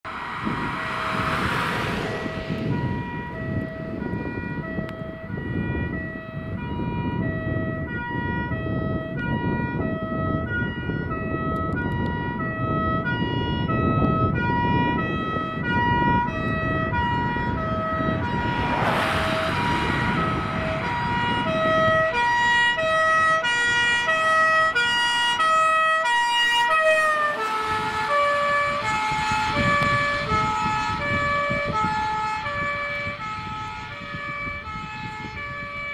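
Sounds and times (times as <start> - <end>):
truck engine and tyre noise: 0.0 - 35.9
two-tone fire engine siren: 0.0 - 35.9
brief rush of noise: 0.1 - 3.1, 17.7 - 22.1.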